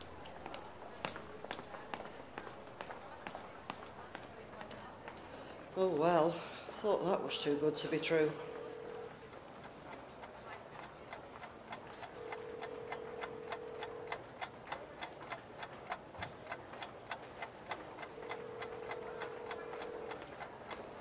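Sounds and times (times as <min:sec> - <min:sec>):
clock ticking: 0:11.1 - 0:21.0.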